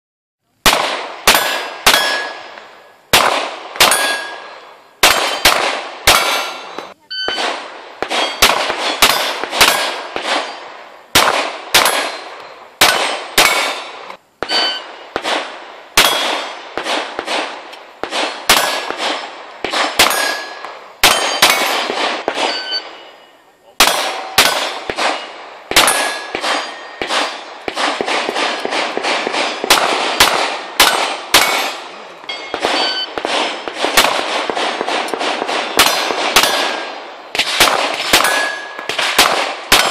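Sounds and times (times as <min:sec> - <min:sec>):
pistol shots: 0:00.6 - 0:23.1, 0:23.8 - 0:39.9
steel plate ringing: 0:03.9 - 0:05.5, 0:14.5 - 0:15.0, 0:25.8 - 0:27.5, 0:30.8 - 0:33.7.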